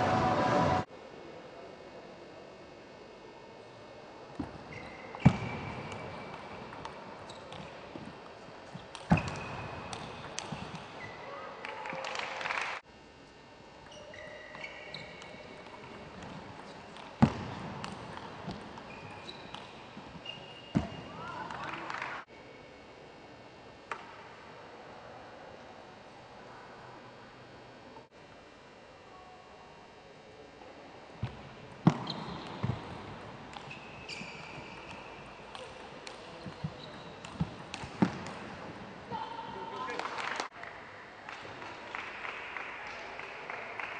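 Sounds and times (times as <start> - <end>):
shoe squeaks: 4.7 - 6.3, 7.2 - 7.6, 13.8 - 15.8, 18.8 - 21.2, 31.8 - 32.8, 33.6 - 35.3, 36.3 - 37.5.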